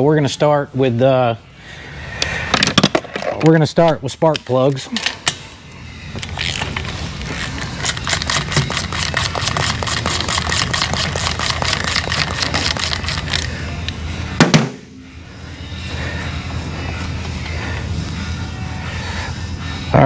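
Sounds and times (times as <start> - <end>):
ratchet wrench clicking: 6.2 - 13.5
sharp knock: 14.4 - 15.0.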